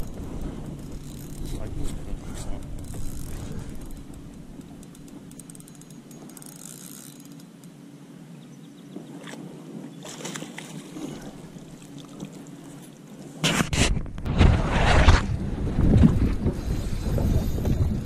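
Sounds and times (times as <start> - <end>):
faint steady hum: 0.0 - 14.2
light wind: 0.0 - 18.0.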